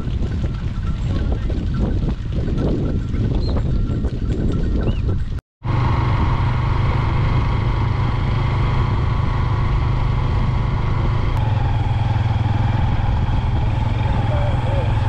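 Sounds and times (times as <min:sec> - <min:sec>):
motorcycle engine running: 0:03.8 - 0:15.0.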